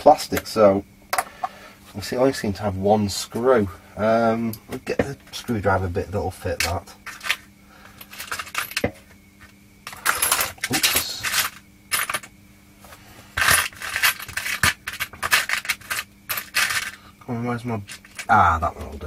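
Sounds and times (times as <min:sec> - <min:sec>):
metal screwdriver bits clinking: 0:08.1 - 0:08.9, 0:09.9 - 0:12.3, 0:13.4 - 0:17.0.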